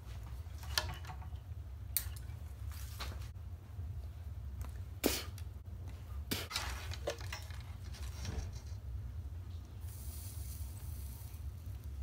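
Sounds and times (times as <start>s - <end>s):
low steady hum: 0.0s - 12.0s
soldering flux sizzling: 9.8s - 12.0s.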